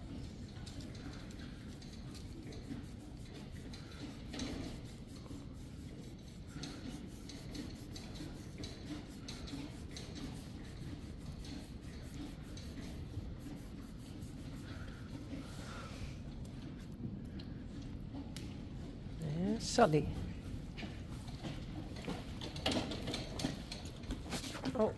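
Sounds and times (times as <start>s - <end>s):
fingers scratching horse's coat: 0.1s - 15.6s.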